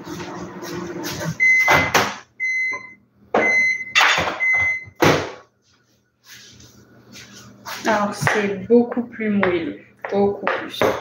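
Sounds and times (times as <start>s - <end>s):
microwave beeping: 0.0s - 5.4s
microwave oven humming: 0.0s - 10.7s.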